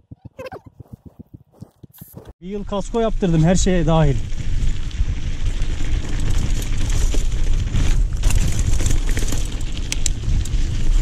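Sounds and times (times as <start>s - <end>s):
stones and bike rattling: 3.0s - 11.0s.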